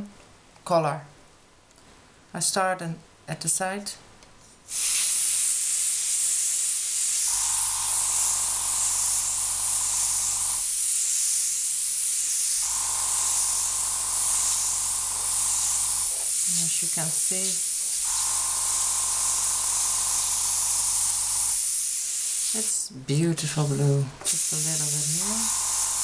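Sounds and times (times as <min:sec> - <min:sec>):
airbrush hiss: 0:04.7 - 0:22.9, 0:24.3 - 0:26.0.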